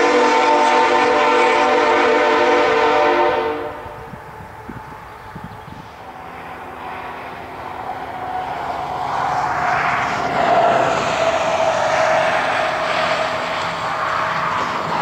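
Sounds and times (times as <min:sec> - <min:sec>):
diesel locomotive engines: 0:00.0 - 0:15.0
steady whine: 0:04.2 - 0:15.0.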